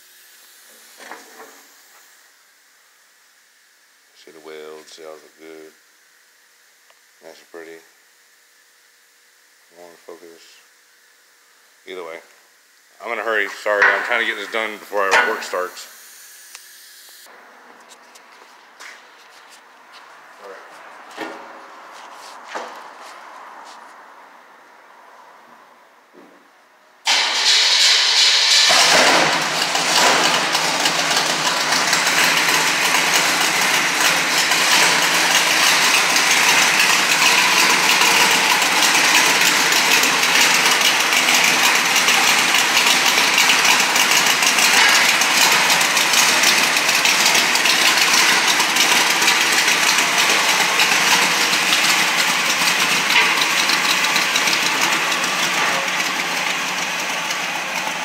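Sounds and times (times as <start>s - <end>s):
loud mechanical running noise: 0.0s - 17.6s, 27.0s - 58.0s.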